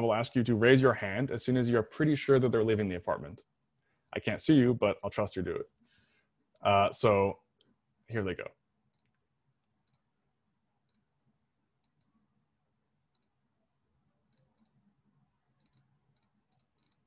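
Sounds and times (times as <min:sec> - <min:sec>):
faint high-pitched ticks: 0:09.8 - 0:10.1, 0:10.8 - 0:11.1, 0:11.8 - 0:12.2, 0:13.1 - 0:13.4, 0:14.3 - 0:14.9, 0:15.6 - 0:17.0.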